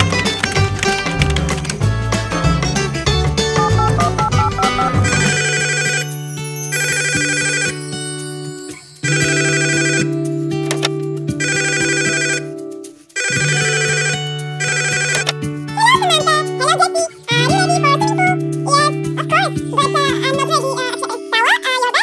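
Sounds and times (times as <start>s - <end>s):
mobile phone ringtone: 3.6s - 10.2s, 11.4s - 12.6s, 13.2s - 15.4s.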